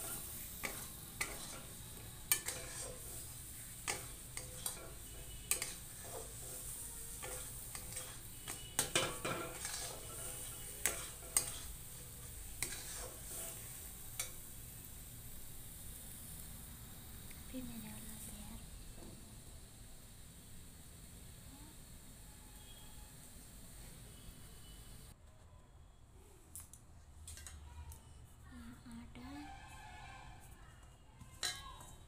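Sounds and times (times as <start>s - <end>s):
spatula clinking against pan: 0.0s - 13.6s, 31.4s - 32.0s
metal spatula scraping pan: 0.0s - 14.5s, 29.4s - 30.5s
faint hiss from pan: 0.0s - 25.2s.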